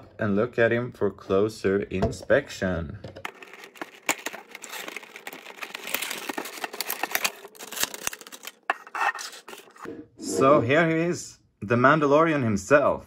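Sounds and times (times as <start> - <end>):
cardboard and plastic rustling: 3.2 - 9.9.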